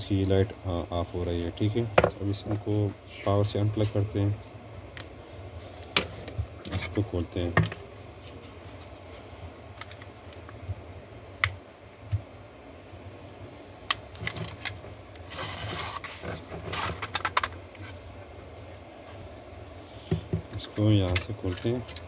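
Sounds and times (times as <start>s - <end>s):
plastic scraping on plastic: 14.2s - 18.0s.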